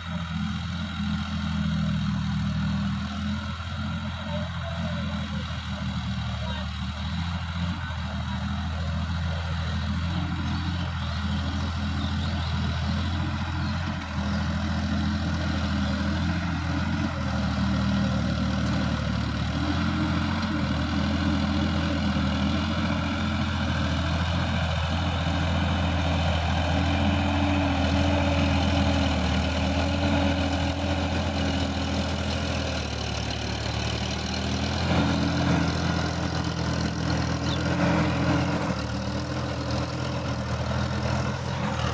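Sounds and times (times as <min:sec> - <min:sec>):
tractor diesel engine running: 0:00.0 - 0:41.9.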